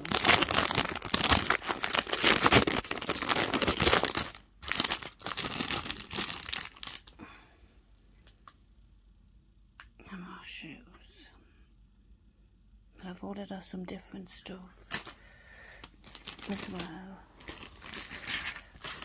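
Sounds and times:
plastic packaging crinkling: 0:00.0 - 0:07.3, 0:14.9 - 0:15.2, 0:15.8 - 0:19.0.

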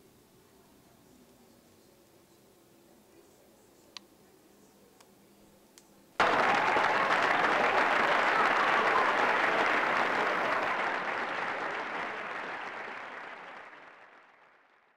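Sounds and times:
crowd applause: 0:06.2 - 0:14.9.

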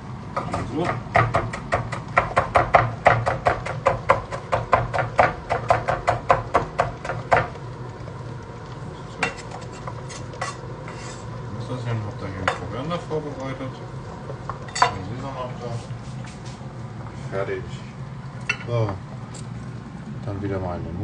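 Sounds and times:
knife chopping on a cutting board: 0:00.4 - 0:07.5.

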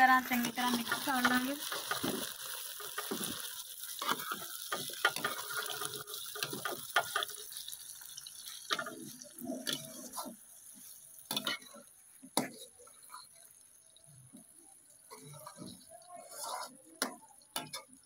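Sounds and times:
faint frying sizzle: 0:00.0 - 0:18.0
spoon scraping metal pot: 0:03.9 - 0:07.5, 0:15.1 - 0:17.9.

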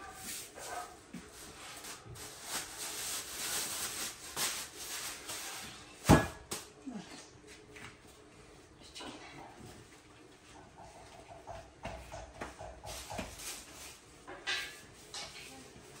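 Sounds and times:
dough thumping on table: 0:06.0 - 0:06.7, 0:11.4 - 0:13.5.

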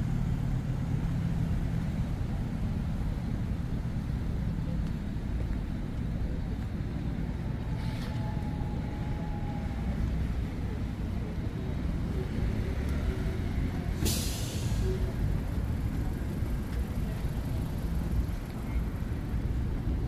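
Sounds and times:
traffic rumble: 0:00.0 - 0:20.0
air-brake hiss: 0:14.0 - 0:15.2.

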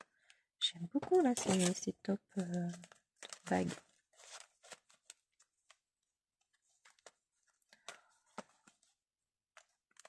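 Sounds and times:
paper rustling and clicks: 0:01.0 - 0:05.8, 0:06.4 - 0:08.9, 0:09.5 - 0:10.0.

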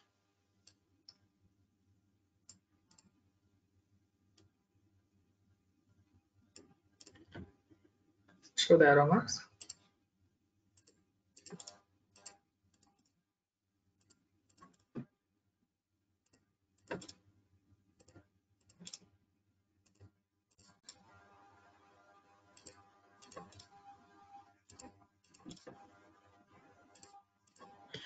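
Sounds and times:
computer mouse clicks: 0:02.5 - 0:03.1, 0:06.6 - 0:07.4, 0:10.8 - 0:13.1, 0:14.0 - 0:15.0, 0:16.2 - 0:17.2, 0:18.0 - 0:19.1, 0:19.8 - 0:21.0, 0:22.6 - 0:23.8, 0:24.7 - 0:25.8, 0:26.9 - 0:27.8.

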